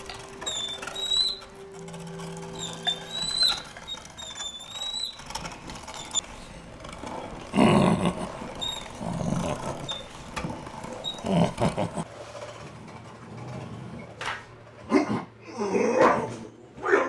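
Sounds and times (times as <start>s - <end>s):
meat grinder crank squeaking: 0.0s - 12.0s
meat grinder grinding: 0.0s - 12.4s.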